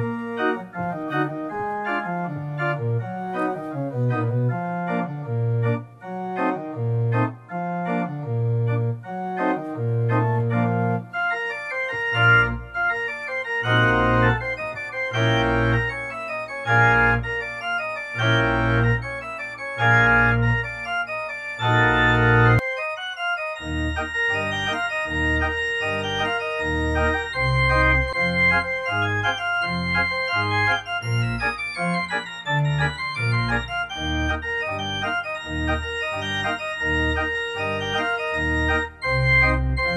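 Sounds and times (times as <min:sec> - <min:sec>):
organ music: 0:00.0 - 0:39.9.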